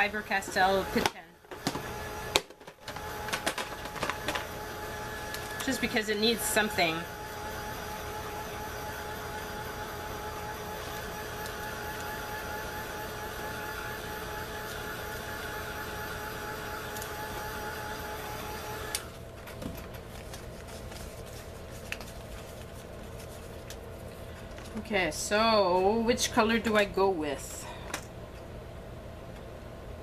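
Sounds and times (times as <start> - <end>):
heat tool blowing: 4.4 - 19.1.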